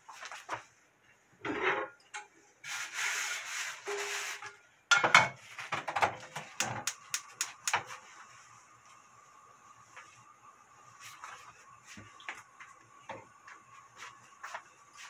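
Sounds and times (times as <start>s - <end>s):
frying pan scraping: 1.4s - 2.0s, 2.6s - 6.2s
gas stove igniter clicks: 6.6s - 7.8s.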